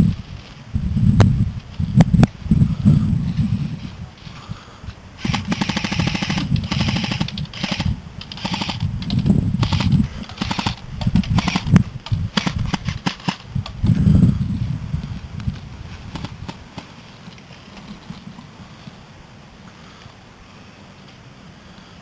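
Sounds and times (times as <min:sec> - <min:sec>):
airsoft rifles firing bursts: 0:05.2 - 0:13.5, 0:16.1 - 0:17.0.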